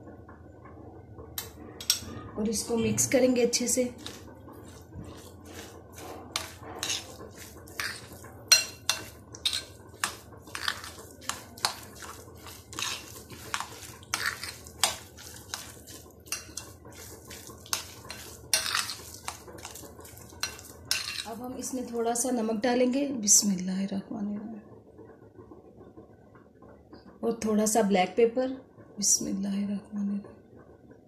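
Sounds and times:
fork clinking against glass bowl: 7.8 - 11.0, 17.7 - 19.0.

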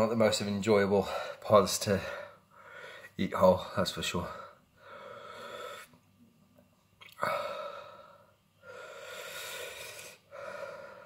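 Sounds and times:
man breathing heavily: 1.0 - 6.0, 7.2 - 11.0
man gasping: 7.2 - 11.0.

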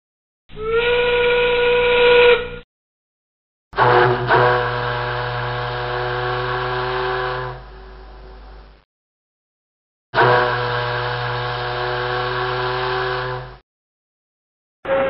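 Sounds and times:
steam whistle blasts: 0.6 - 2.6, 3.8 - 8.3, 10.2 - 13.6.

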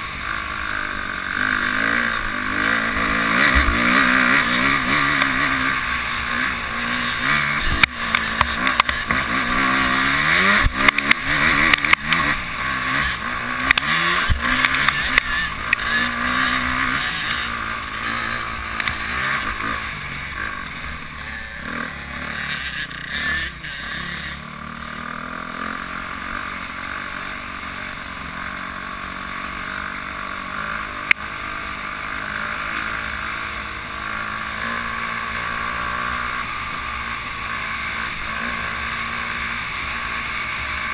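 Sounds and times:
dirt bike engine revving: 0.0 - 40.9
sharp click: 10.6 - 12.3, 13.7 - 15.9.

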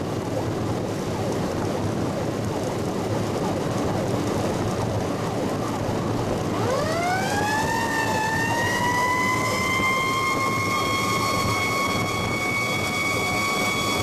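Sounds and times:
road noise: 0.0 - 7.4
truck engine rumble: 0.0 - 14.0
fire truck siren wailing: 5.2 - 14.0.

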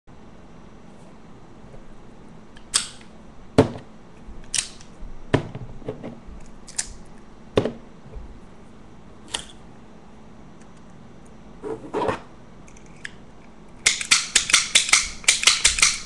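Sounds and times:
sharp metallic clicks and snaps: 13.8 - 16.0.

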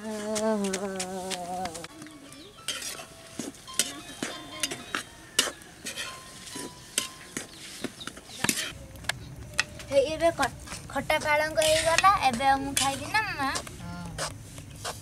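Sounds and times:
metal spatula scraping wok: 2.5 - 8.8, 10.6 - 15.0.

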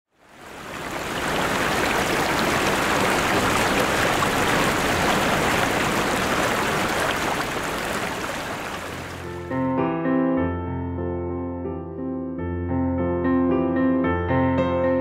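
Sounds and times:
water splashing over rocks: 0.2 - 9.3.

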